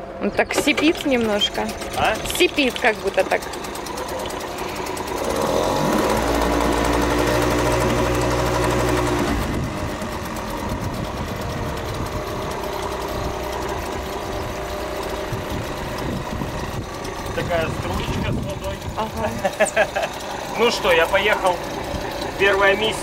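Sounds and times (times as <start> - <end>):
outboard motor running: 0.0 - 23.0.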